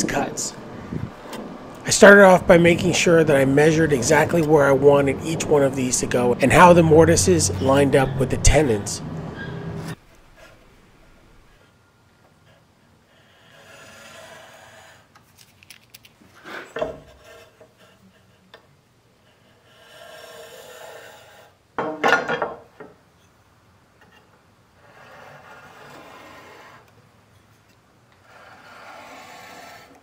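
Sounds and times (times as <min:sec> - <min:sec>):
pencil scratching along ruler: 0:13.5 - 0:15.1, 0:19.4 - 0:21.5, 0:24.8 - 0:26.9, 0:28.2 - 0:30.0.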